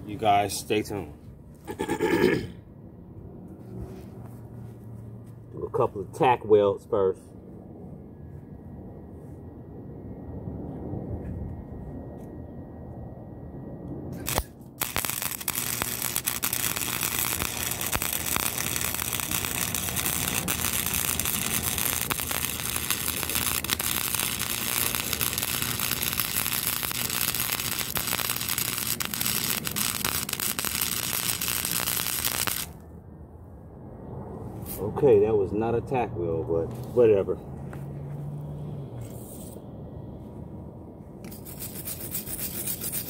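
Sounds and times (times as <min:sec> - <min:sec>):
welder arc crackling: 0:14.2 - 0:32.8.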